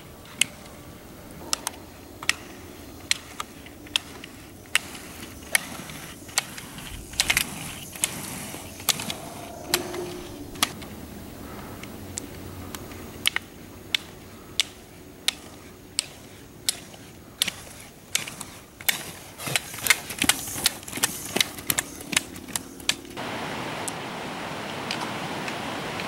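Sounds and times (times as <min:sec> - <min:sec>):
steady rushing noise: 0:00.0 - 0:18.0
ski pole tips clicking on asphalt: 0:00.2 - 0:09.1, 0:11.8 - 0:23.1.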